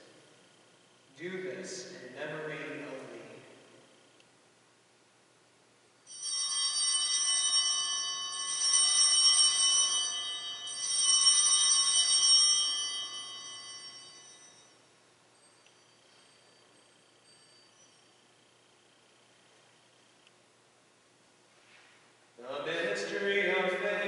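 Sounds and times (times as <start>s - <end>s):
altar bells ringing: 6.1s - 18.9s.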